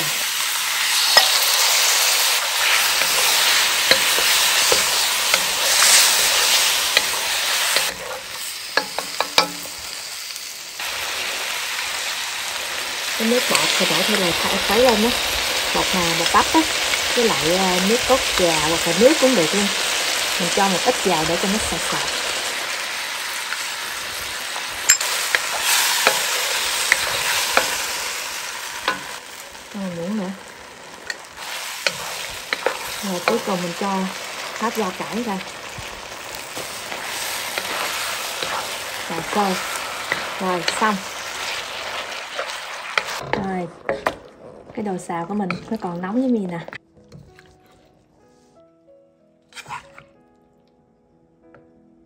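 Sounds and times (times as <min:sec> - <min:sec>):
food sizzling in a wok: 0:00.0 - 0:44.2
wooden spatula scraping wok: 0:00.7 - 0:09.8, 0:23.2 - 0:46.0, 0:49.5 - 0:50.2.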